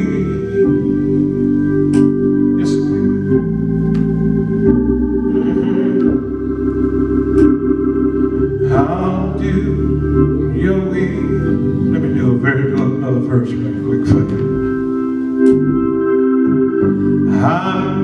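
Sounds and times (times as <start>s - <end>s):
church organ chords: 0.0s - 18.0s
man singing: 8.6s - 14.6s, 17.3s - 18.0s.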